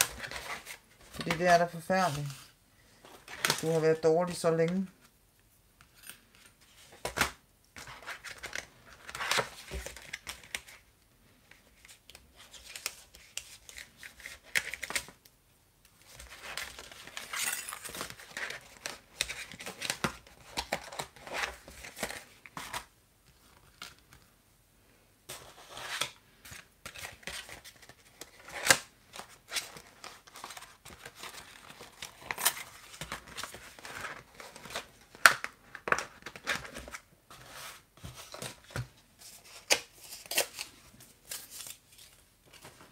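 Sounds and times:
plastic packaging rustling: 0:26.5 - 0:42.9.

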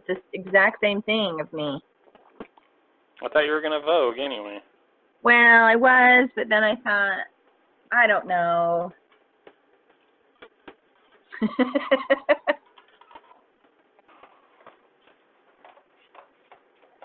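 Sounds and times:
woman laughing: 0:11.3 - 0:12.6.

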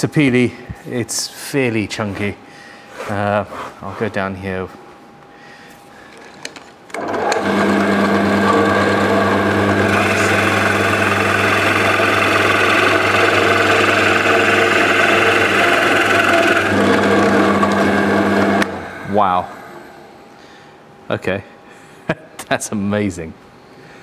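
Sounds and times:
drill press motor running: 0:06.9 - 0:20.2
drill bit boring into wood: 0:07.0 - 0:19.1.

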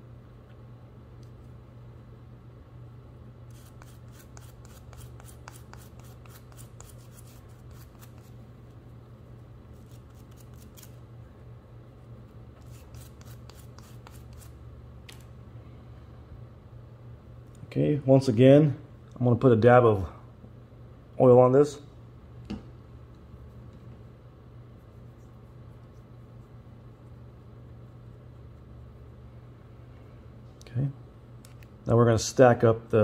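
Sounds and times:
steady low hum: 0:00.0 - 0:33.0
light scratching strokes on screw: 0:03.5 - 0:08.4, 0:09.7 - 0:11.0, 0:12.6 - 0:14.6.

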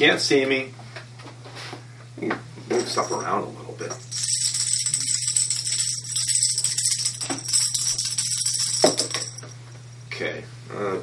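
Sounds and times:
objects rustling and rattling on table: 0:03.9 - 0:09.6.

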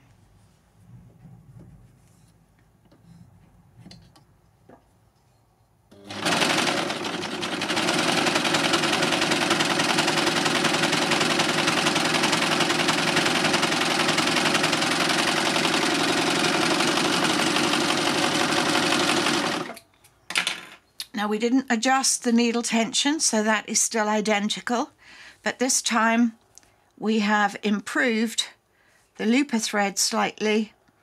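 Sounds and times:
overlocker sewing machine running: 0:06.0 - 0:19.8.

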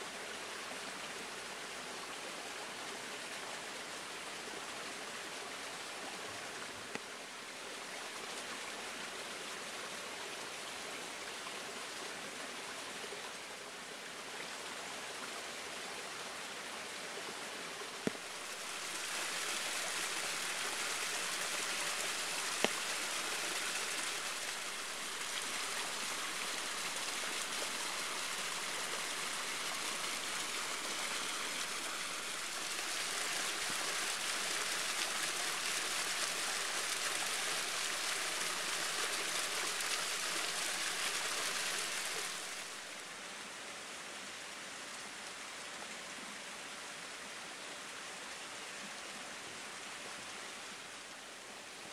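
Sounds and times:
waterfall rushing and splashing: 0:18.1 - 0:43.0.

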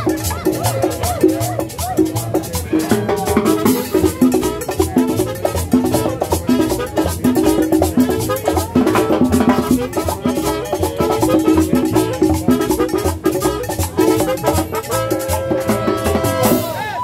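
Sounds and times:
conga drums: 0:00.0 - 0:17.0
latin dance band: 0:00.0 - 0:17.0
trumpet holding long notes: 0:14.1 - 0:16.8.

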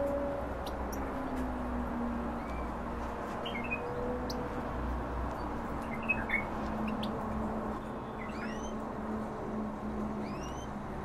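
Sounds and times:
finches chirping: 0:08.2 - 0:08.8.

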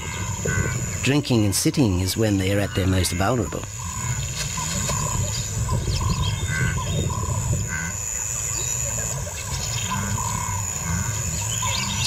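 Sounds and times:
continuous low rumble: 0:00.0 - 0:12.0
high insect whine: 0:00.0 - 0:12.0.

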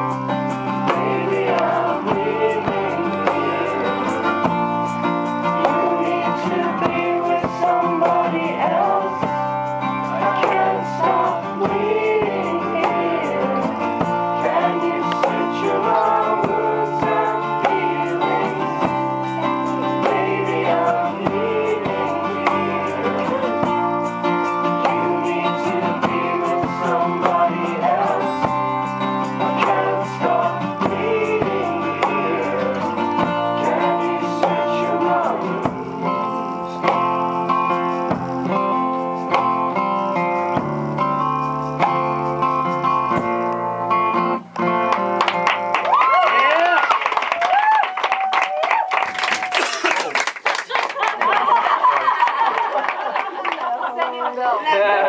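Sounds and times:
acoustic guitar strummed: 0:00.0 - 0:45.9
man singing: 0:00.9 - 0:04.7, 0:05.6 - 0:09.5, 0:10.1 - 0:19.2, 0:19.9 - 0:23.8, 0:24.8 - 0:28.6, 0:29.4 - 0:37.0.

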